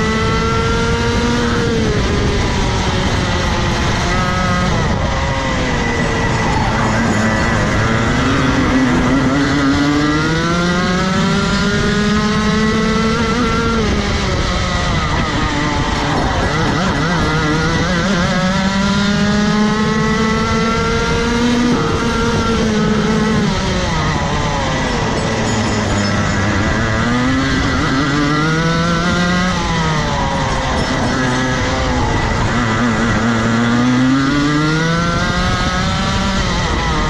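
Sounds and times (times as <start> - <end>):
kart engine revving: 0.0 - 37.0.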